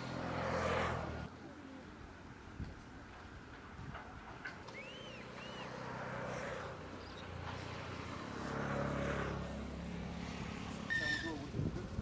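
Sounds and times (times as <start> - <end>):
bird chirps: 4.7 - 5.8, 7.0 - 7.4.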